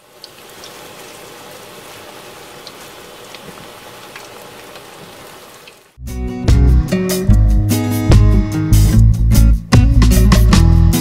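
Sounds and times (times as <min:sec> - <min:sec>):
cutlet deep-frying in oil: 0:00.0 - 0:06.0
small oil crackles: 0:00.0 - 0:06.0.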